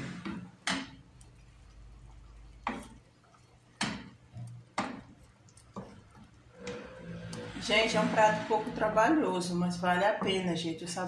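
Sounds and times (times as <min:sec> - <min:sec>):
wooden spoon knocking on metal pot: 0:00.0 - 0:01.0, 0:02.6 - 0:03.0, 0:03.8 - 0:06.0, 0:10.1 - 0:10.5.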